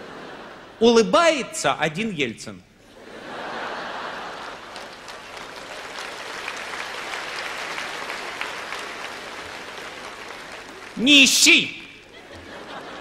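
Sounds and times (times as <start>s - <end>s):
audience laughing: 2.9s - 5.1s, 11.5s - 13.0s
audience applauding: 4.3s - 13.0s.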